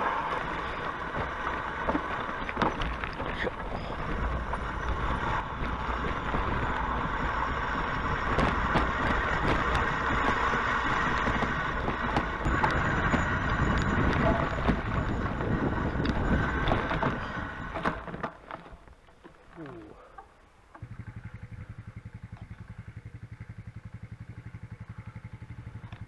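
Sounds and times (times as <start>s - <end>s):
wind rumbling on microphone: 0.0s - 18.3s.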